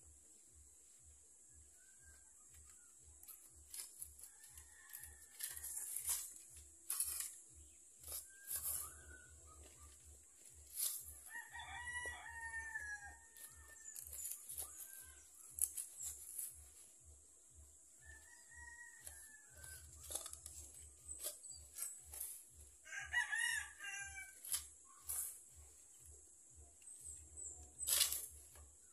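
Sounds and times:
hands working in soil and leaves: 0:00.2 - 0:28.9
hand trowel scraping soil: 0:02.5 - 0:17.1, 0:18.2 - 0:28.9
rooster crowing: 0:03.7 - 0:06.3, 0:11.1 - 0:15.4, 0:18.0 - 0:20.3, 0:22.8 - 0:24.7.

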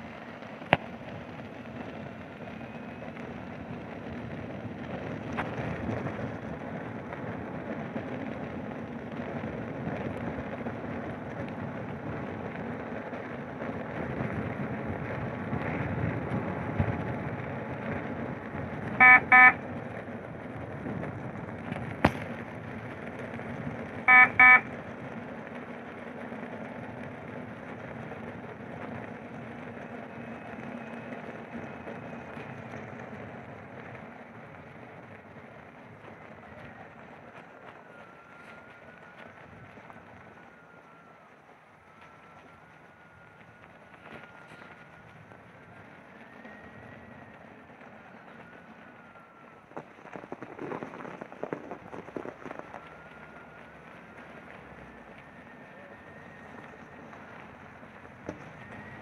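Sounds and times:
double electronic beeps: 0:19.0 - 0:19.6, 0:24.1 - 0:24.7.

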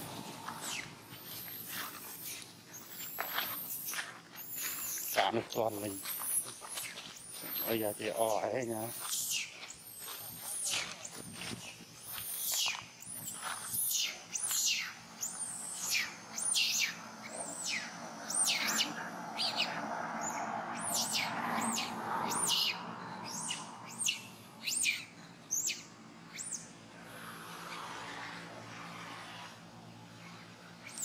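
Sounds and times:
monkey screaming: 0:13.8 - 0:25.8.

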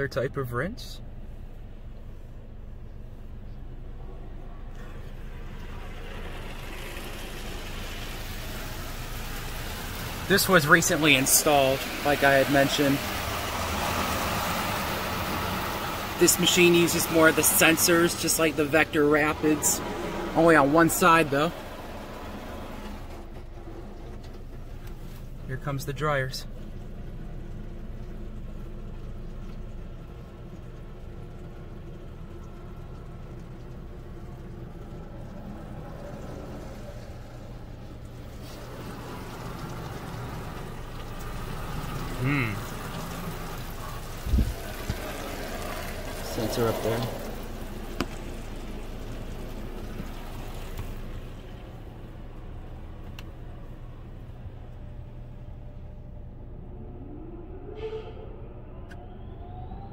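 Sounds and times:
low machinery hum: 0:00.0 - 0:59.9
water spattering on car: 0:04.8 - 0:25.4, 0:26.6 - 0:53.1.

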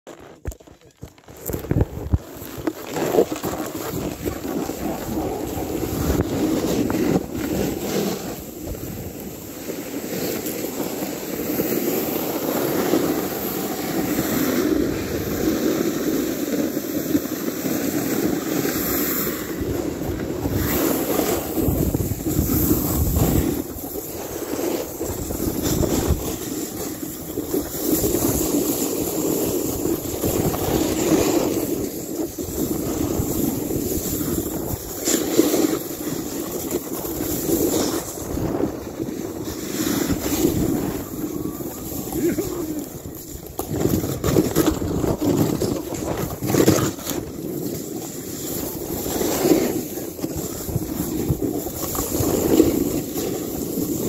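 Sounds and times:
wind buffeting microphone: 0:19.3 - 0:28.6, 0:29.5 - 0:47.4.

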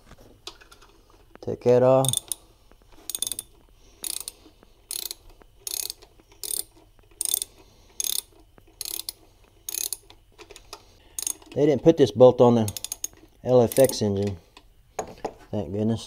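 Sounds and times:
socket ratchet clicking: 0:02.0 - 0:02.4, 0:03.0 - 0:10.6, 0:11.2 - 0:11.6, 0:12.6 - 0:14.1.

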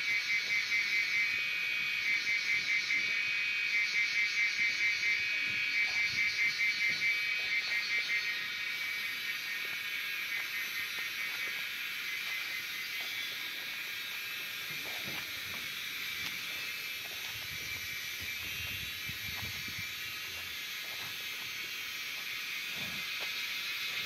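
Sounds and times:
insect chorus chirring: 0:00.0 - 0:24.0
cattle hooves scraping dirt: 0:09.6 - 0:24.0.

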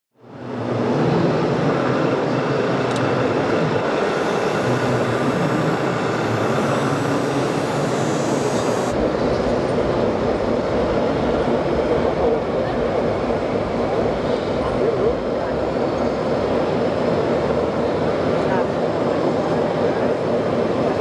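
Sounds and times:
busy exhibition hall din: 0:00.2 - 0:21.0
mechanical rumble: 0:02.6 - 0:18.6.

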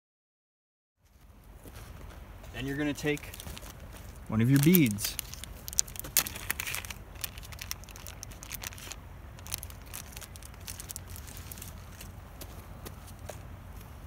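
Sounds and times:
plastic packet crinkling: 0:02.9 - 0:12.1.

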